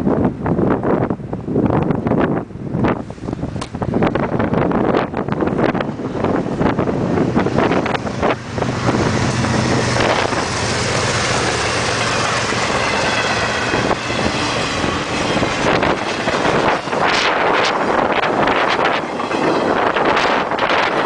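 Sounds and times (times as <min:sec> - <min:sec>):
diesel locomotive engines droning: 0:00.0 - 0:21.0
wind buffeting microphone: 0:00.0 - 0:21.0
train rushing past: 0:04.0 - 0:21.0.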